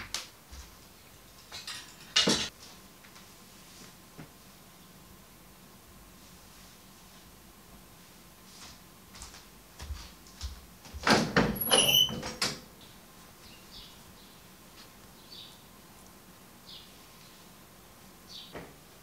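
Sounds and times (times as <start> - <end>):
short squeal: 11.6 - 12.2.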